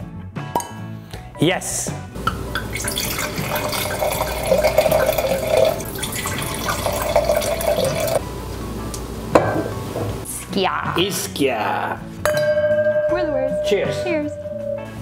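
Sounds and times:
wine pouring into glass: 0:02.5 - 0:08.2.

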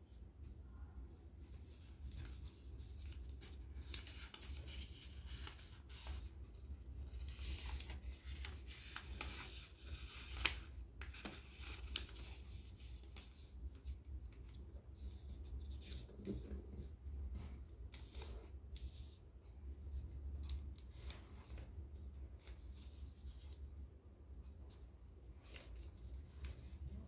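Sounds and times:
low steady hum: 0:00.0 - 0:09.5
paper being folded and crinkled: 0:01.4 - 0:19.2, 0:19.9 - 0:23.7, 0:24.6 - 0:27.0.

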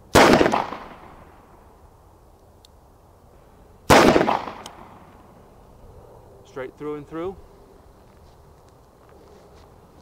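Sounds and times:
revolver gunshot: 0:00.1 - 0:01.3, 0:03.9 - 0:05.0.

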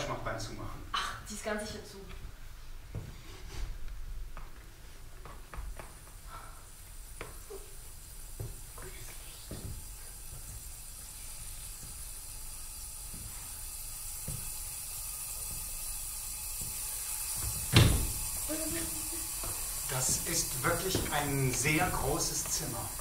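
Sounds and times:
soft hiss: 0:00.0 - 0:23.0
sharp thump: 0:17.5 - 0:18.2.

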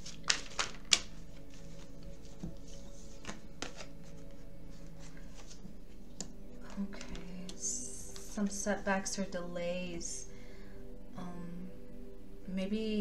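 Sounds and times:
cards being shuffled: 0:00.0 - 0:08.3
soft background music: 0:00.0 - 0:13.0.

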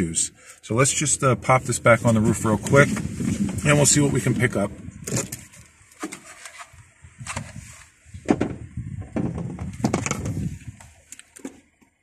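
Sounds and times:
knocks and clunks of handling: 0:08.2 - 0:12.0.

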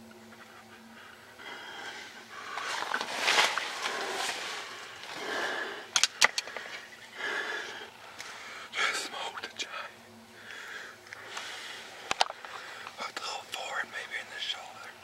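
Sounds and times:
person breathing heavily: 0:00.4 - 0:13.4
sharp clicks: 0:05.9 - 0:06.7.

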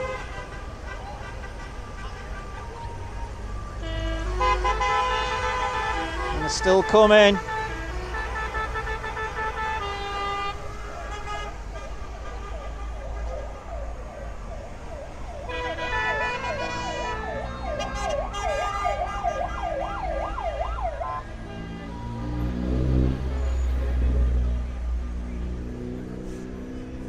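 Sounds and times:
passing vehicle rumble: 0:00.0 - 0:27.0
steady horn-like tones: 0:03.8 - 0:13.4, 0:15.5 - 0:19.5, 0:20.8 - 0:24.6.

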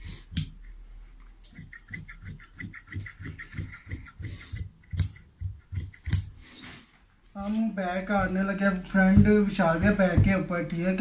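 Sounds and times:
shears snipping cloth: 0:01.4 - 0:06.4.

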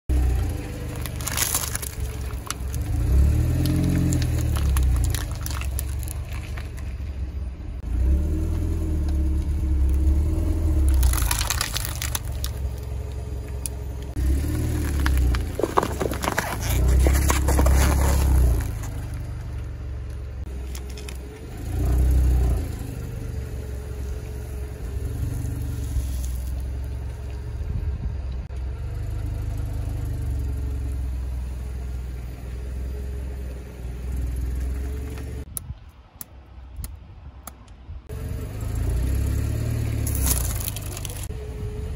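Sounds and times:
car engine and tyre rumble: 0:00.0 - 0:41.9
objects crunching under tyre: 0:00.1 - 0:07.4, 0:08.0 - 0:22.5, 0:25.0 - 0:27.5, 0:38.9 - 0:41.4.

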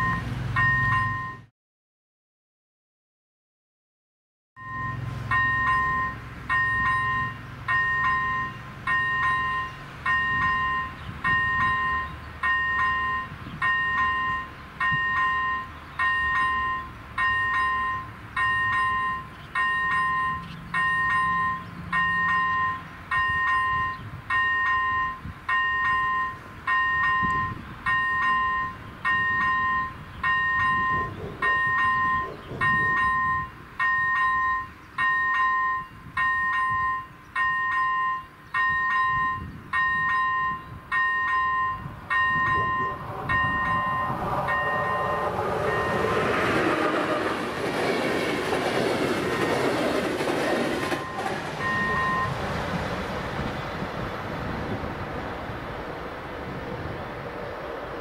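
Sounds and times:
level-crossing warning bell dinging: 0:00.0 - 0:01.5, 0:04.6 - 0:52.7
low rumble: 0:42.4 - 0:47.8.

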